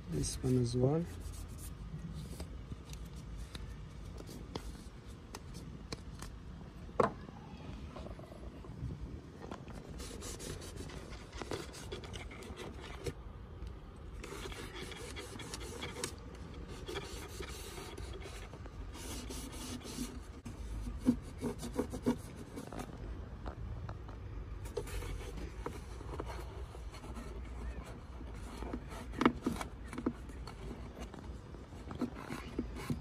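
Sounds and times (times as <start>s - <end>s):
paper towel wiping plastic: 9.7s - 13.2s, 14.1s - 22.9s.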